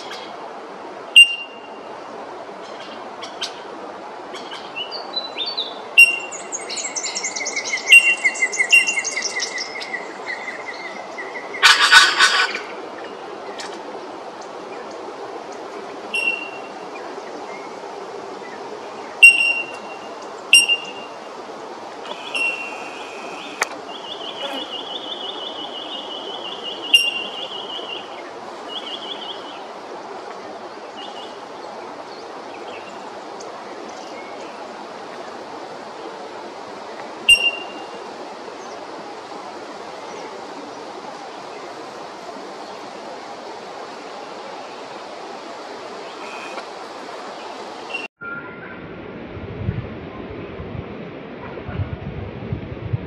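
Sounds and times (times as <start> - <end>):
steady hiss: 0.0 - 48.1
bird harsh calls: 6.0 - 12.7, 22.0 - 28.1, 46.1 - 46.6
bird rapid twittering: 22.1 - 28.0.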